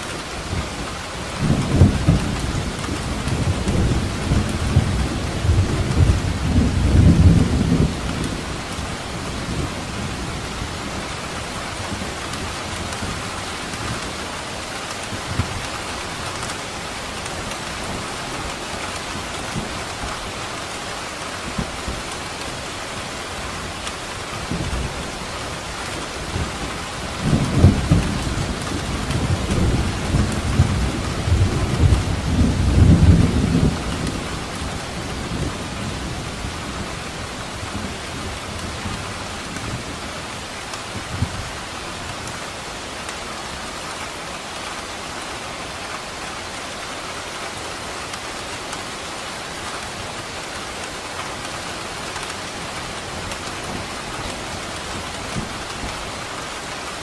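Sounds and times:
steady rain hissing: 0.0 - 57.0
thunder rumbling: 1.2 - 10.8, 24.4 - 40.0.

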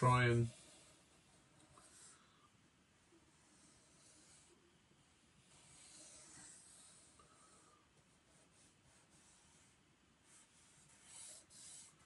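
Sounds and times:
marker pen scratching on paper: 8.0 - 12.0.

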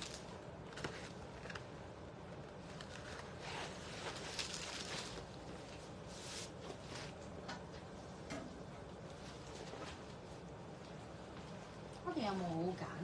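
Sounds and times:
bag rustling: 2.9 - 5.5.

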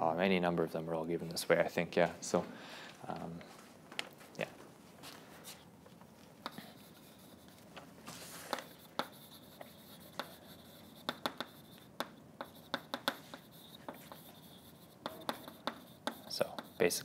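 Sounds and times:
chalk scratching: 6.4 - 17.0
chalk tapping on blackboard: 6.4 - 17.0.

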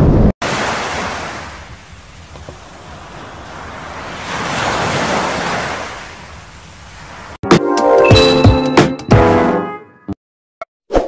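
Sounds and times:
surf washing up on beach: 0.4 - 7.4.

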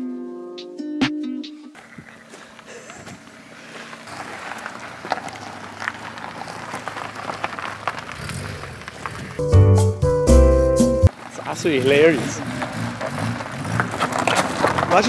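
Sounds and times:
footsteps crunching on gravel: 1.8 - 9.4, 11.1 - 15.0.

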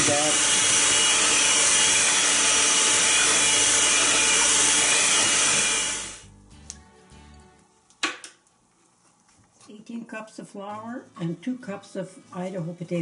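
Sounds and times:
electric hand mixer running: 0.0 - 6.3.

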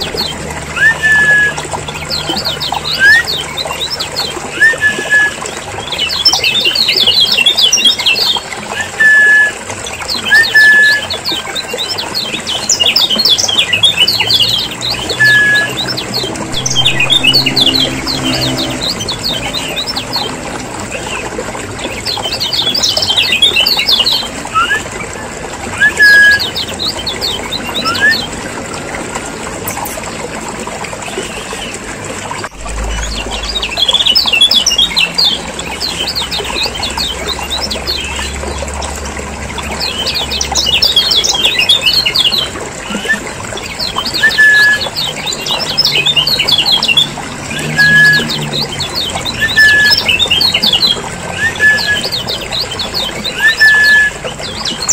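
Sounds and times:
bird whistled notes: 0.8 - 1.7, 2.3 - 3.4, 4.5 - 5.4, 15.0 - 19.8, 24.5 - 24.9, 27.8 - 28.3, 44.1 - 44.9, 49.4 - 52.2, 53.3 - 54.2
low hum: 14.9 - 21.7, 31.7 - 39.6.

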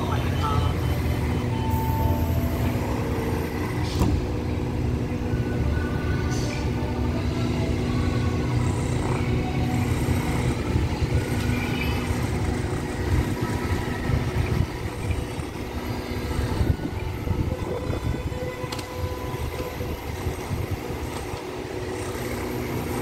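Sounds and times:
diesel train engines droning: 0.0 - 23.0
steady hum: 0.0 - 23.0.

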